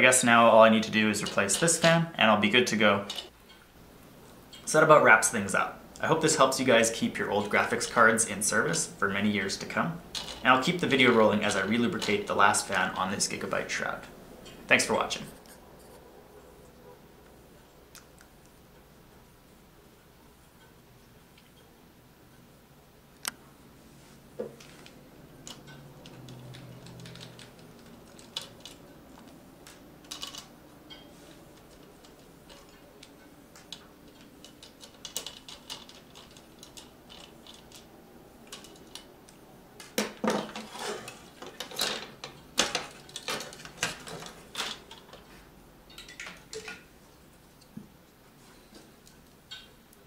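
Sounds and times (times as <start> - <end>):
plastic clatter: 24.4 - 37.9, 39.8 - 45.3.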